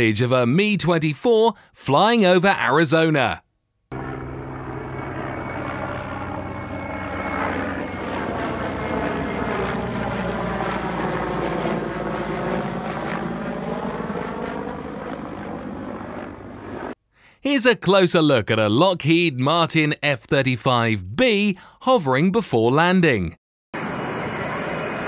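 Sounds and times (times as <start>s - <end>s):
helicopter flying past: 3.9s - 17.0s, 23.8s - 25.0s.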